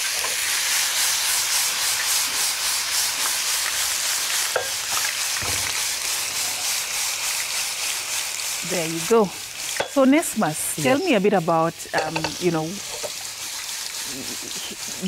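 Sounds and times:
food sizzling in frying pan: 0.0 - 15.0
wooden spatula scraping pan: 8.7 - 15.0.

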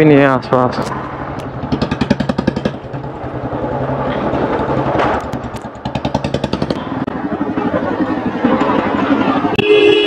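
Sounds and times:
motorcycle engine thudding: 0.9 - 6.9.

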